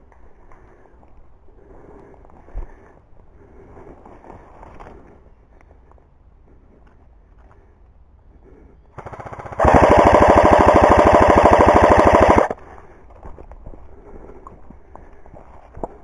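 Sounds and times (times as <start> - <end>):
airsoft gun rapid fire: 9.0 - 12.6.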